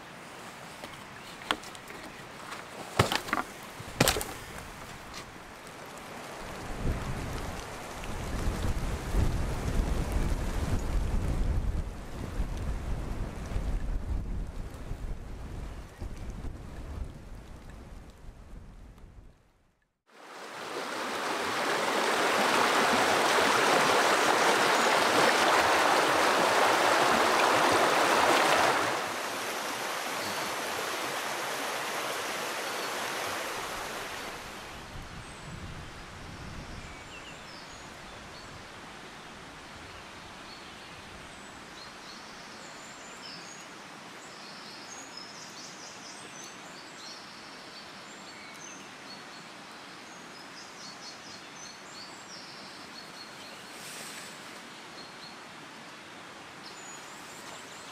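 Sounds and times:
rain falling: 0:03.0 - 0:18.4, 0:20.2 - 0:35.2.

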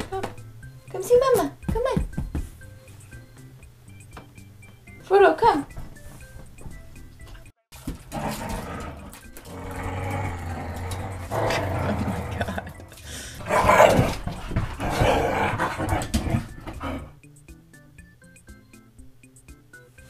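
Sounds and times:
dogs growling: 0:08.1 - 0:17.2.

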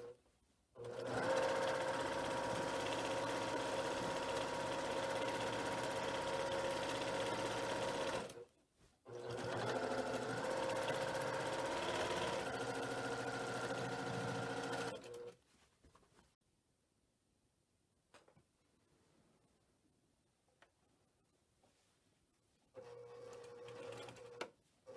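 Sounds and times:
sewing machine stitching: 0:00.8 - 0:08.4, 0:09.1 - 0:15.4, 0:22.8 - 0:24.9.

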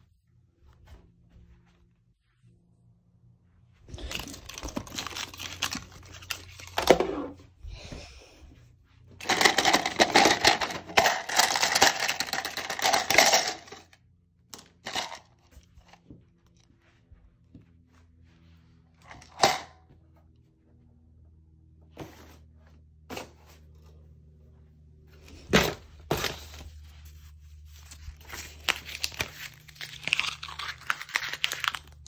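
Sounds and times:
paper and plastic rustling: 0:03.9 - 0:07.1, 0:25.2 - 0:32.0.

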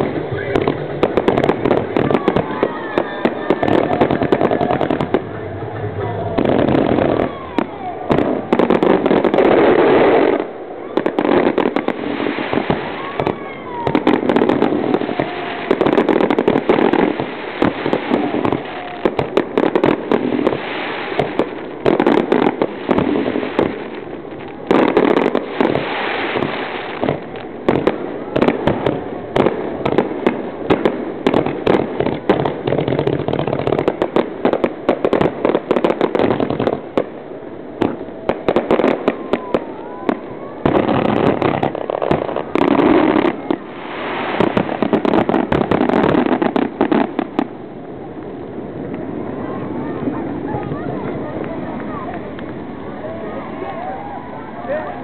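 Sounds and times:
fireworks bangs and crackling: 0:00.0 - 0:55.0.

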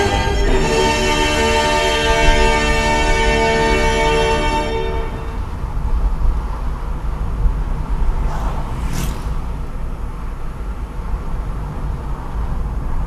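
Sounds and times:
heavy low rumble: 0:04.8 - 0:13.0
tyre and road noise: 0:04.8 - 0:13.0
wind buffeting microphone: 0:05.3 - 0:13.0.

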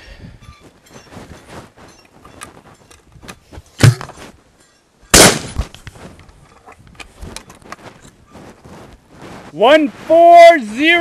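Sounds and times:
loud gunshots: 0:05.2 - 0:05.6.

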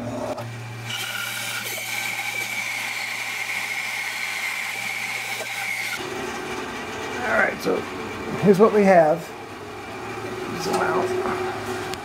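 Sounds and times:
bandsaw hum: 0:00.0 - 0:12.0.

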